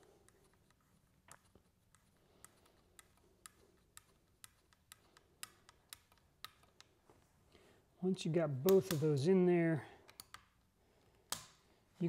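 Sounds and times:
screw ticking as it is turned: 0.0s - 7.0s, 10.0s - 10.6s.

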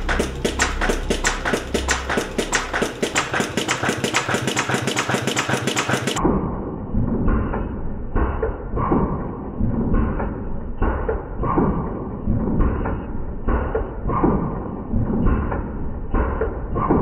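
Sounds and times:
sewing machine needle clicking: 0.0s - 6.2s.

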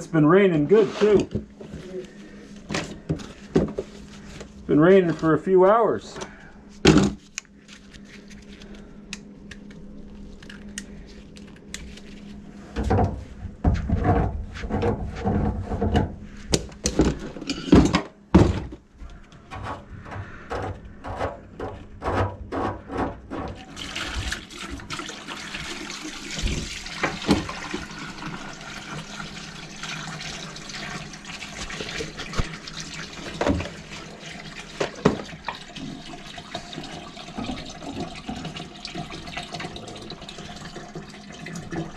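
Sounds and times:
water splashing into bucket: 23.6s - 41.9s.

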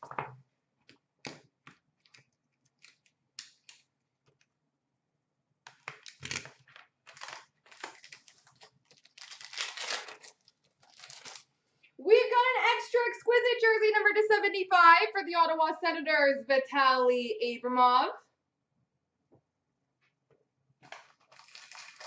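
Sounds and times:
plastic shrink-wrap crinkling: 5.9s - 11.6s, 20.8s - 22.0s.

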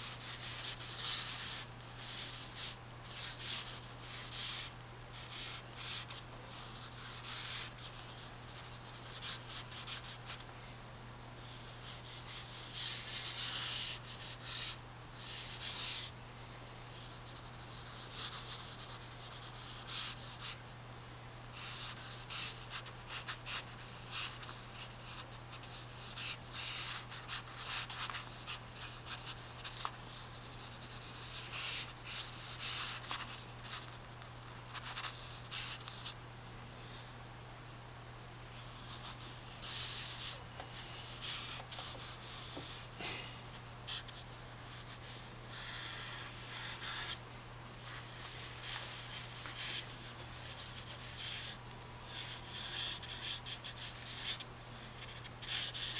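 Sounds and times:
charcoal scratching on paper: 0.0s - 10.4s, 11.4s - 16.1s, 43.9s - 47.2s, 47.8s - 55.9s.

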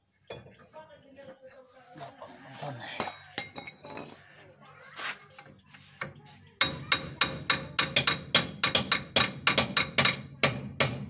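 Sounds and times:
hammer tapping on metal: 6.6s - 11.0s.

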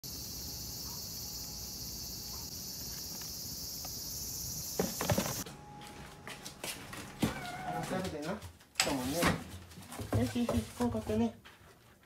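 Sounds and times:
insects chirping: 0.0s - 5.5s.

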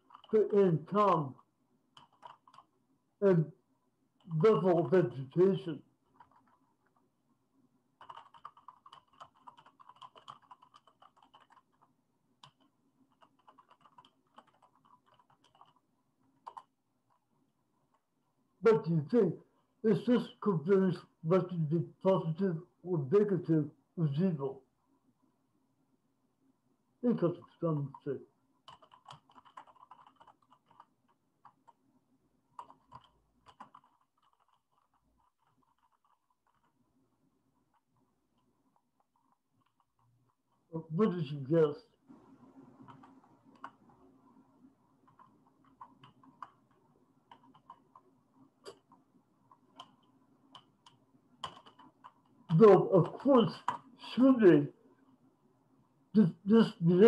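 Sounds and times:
faint keyboard typing: 0.0s - 2.8s, 4.2s - 7.1s, 7.9s - 19.3s, 27.1s - 40.8s, 42.1s - 54.0s.

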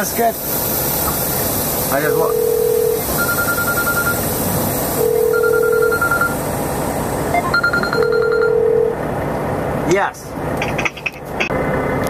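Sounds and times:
truck engine running: 0.0s - 12.0s
electronic phone ringtone: 2.2s - 4.2s, 5.0s - 6.4s, 7.4s - 8.9s.

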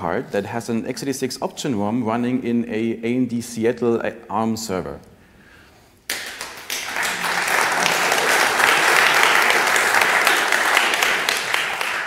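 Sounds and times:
audience applauding: 6.1s - 12.0s.

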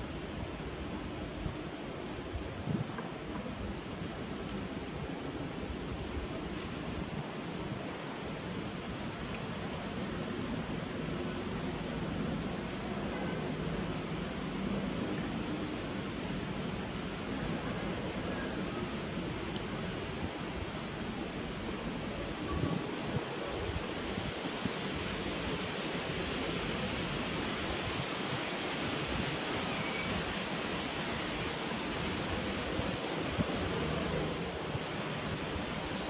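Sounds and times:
high-pitched whine: 0.0s - 36.0s
steady rushing noise: 24.2s - 36.0s.

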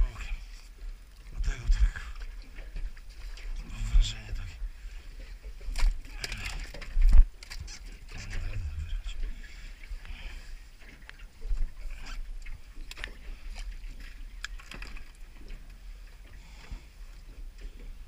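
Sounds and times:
wind rumble on microphone: 0.0s - 14.5s
water slapping against boat hull: 5.2s - 9.1s.

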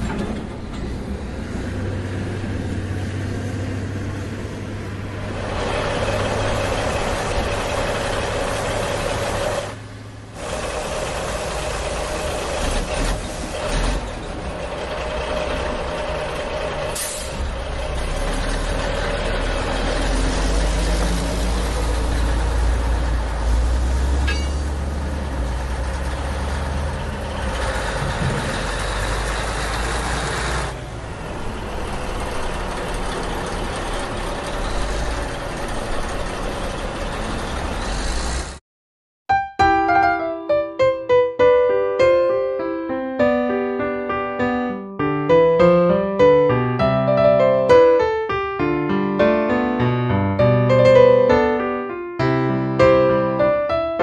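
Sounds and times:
heavy truck engine running: 0.0s - 38.6s.

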